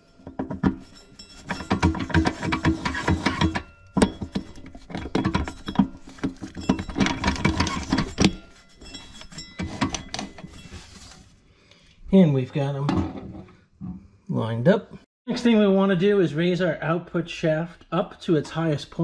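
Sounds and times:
steel case ringing: 0:00.0 - 0:11.2
metal parts clicking and rattling: 0:00.2 - 0:11.2.

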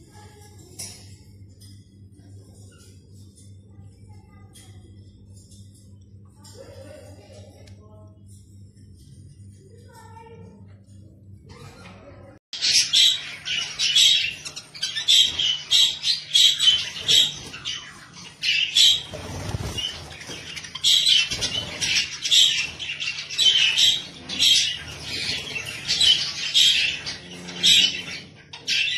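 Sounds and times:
budgerigars chattering and squawking: 0:12.6 - 0:28.9
wings flapping: 0:16.7 - 0:23.2.

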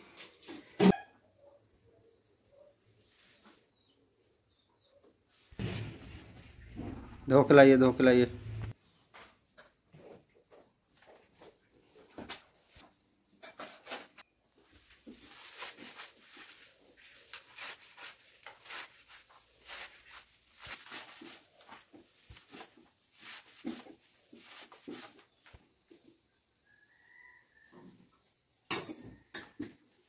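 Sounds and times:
leaves rustling: 0:14.6 - 0:25.1.

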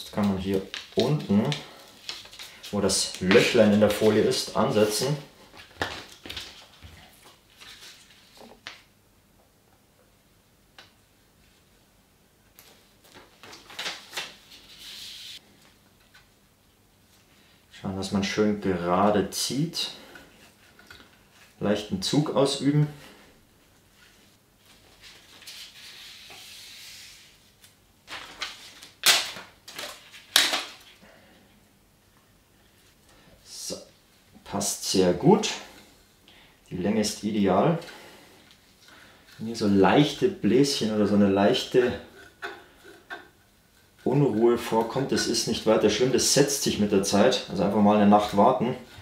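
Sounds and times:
protective film crackling and rustling: 0:00.0 - 0:08.9, 0:12.6 - 0:16.2, 0:23.9 - 0:31.0
protective film rustling hiss: 0:00.0 - 0:09.0, 0:10.7 - 0:49.0.

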